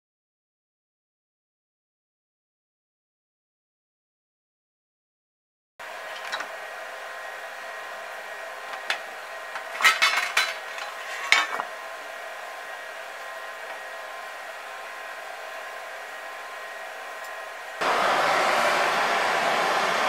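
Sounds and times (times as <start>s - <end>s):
lathe humming: 5.8s - 20.0s.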